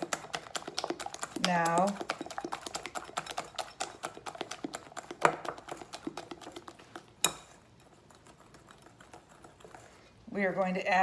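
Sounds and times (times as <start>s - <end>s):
utensil beating in glass bowl: 0.0s - 10.0s.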